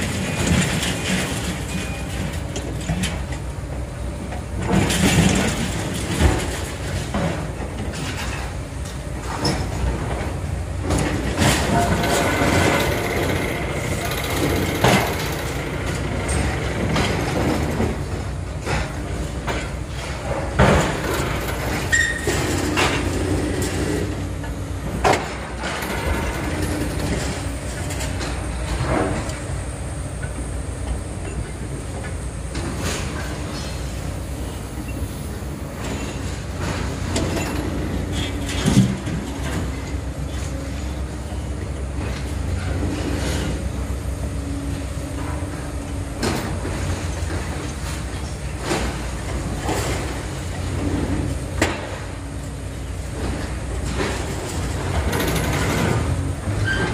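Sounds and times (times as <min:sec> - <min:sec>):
diesel engines running: 0:00.0 - 0:56.9.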